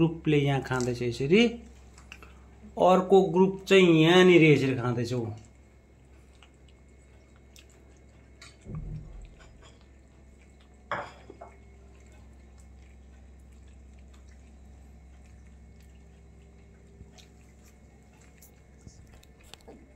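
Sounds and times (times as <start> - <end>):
cats chewing: 0.7 - 19.9
low thump: 8.7 - 9.3.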